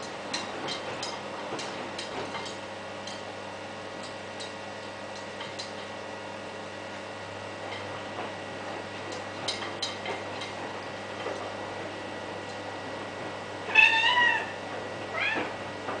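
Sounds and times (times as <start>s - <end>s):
kitten meowing: 13.7s - 15.5s.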